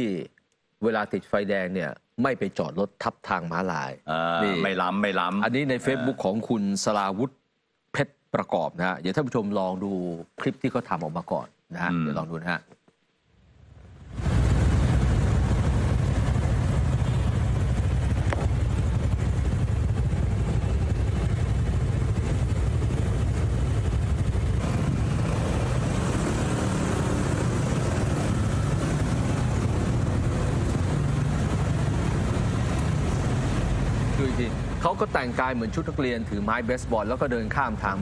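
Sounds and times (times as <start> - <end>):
motorcycles and cars passing: 13.9 - 38.0.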